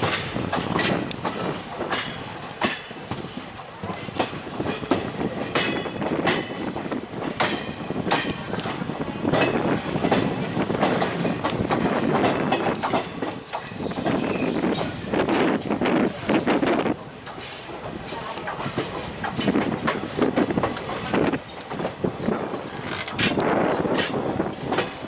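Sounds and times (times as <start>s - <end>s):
train wheels clattering: 0.0s - 25.0s
high-pitched wheel squeal: 13.8s - 16.2s.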